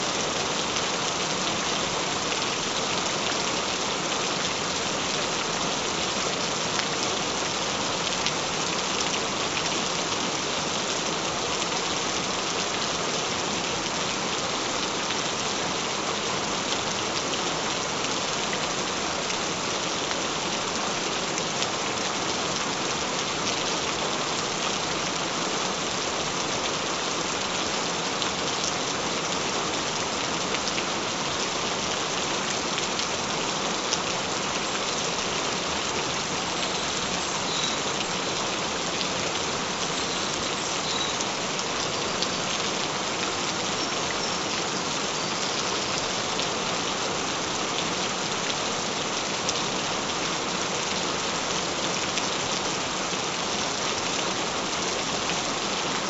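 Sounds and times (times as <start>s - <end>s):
gentle rain falling: 0.0s - 56.0s.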